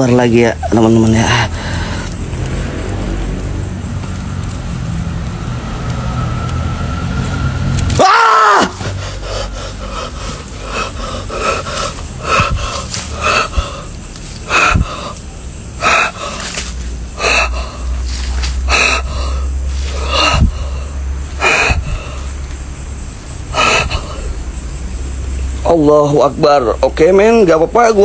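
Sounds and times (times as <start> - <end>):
man breathing hard: 1.2 - 2.3, 8.8 - 24.7.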